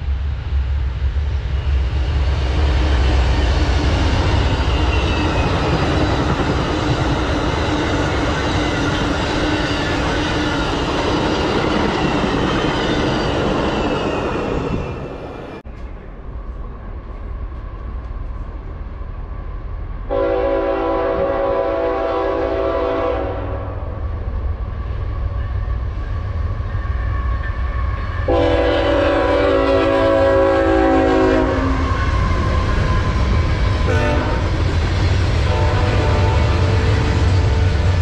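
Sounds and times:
diesel locomotive engine rumble: 0.0s - 38.0s
distant locomotive rumbling: 0.0s - 38.0s
train coaches rushing and rattling: 1.5s - 18.8s, 25.3s - 38.0s
train air horn: 20.1s - 23.8s, 28.3s - 32.6s, 33.9s - 34.5s, 35.4s - 37.9s.

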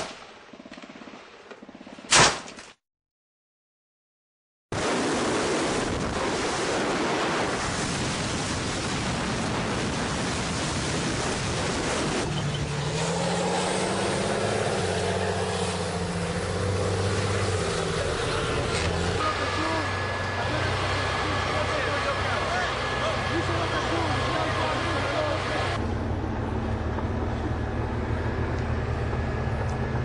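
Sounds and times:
armoured vehicle driving fast: 9.4s - 30.0s
tank engine humming: 11.2s - 30.0s.

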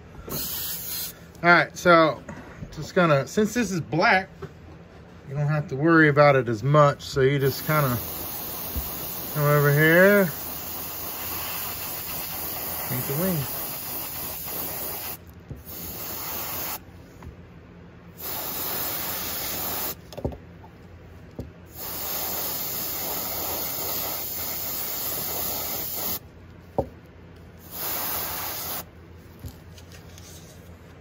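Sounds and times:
airbrush spraying hiss: 0.3s - 1.2s, 7.4s - 16.8s, 18.2s - 20.0s, 21.7s - 26.2s, 27.6s - 28.9s.

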